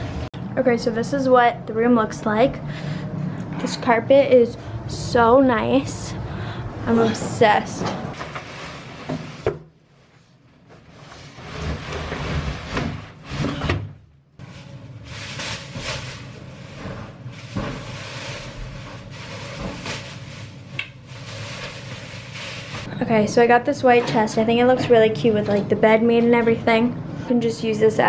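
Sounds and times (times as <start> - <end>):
plastic wrapping rustling and crinkling: 8.2 - 13.3, 14.4 - 22.9.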